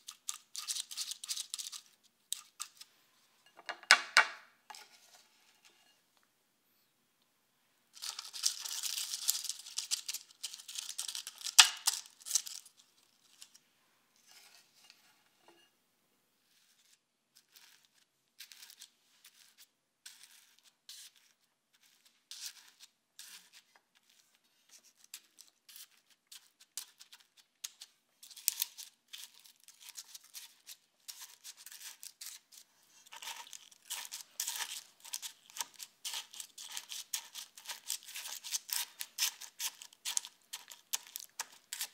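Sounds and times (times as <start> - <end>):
biscuit crumbs crunching: 0.0 - 2.9, 8.0 - 13.6, 16.8 - 41.9
paper liners crinkling: 0.0 - 2.9, 8.0 - 13.6, 16.9 - 41.9.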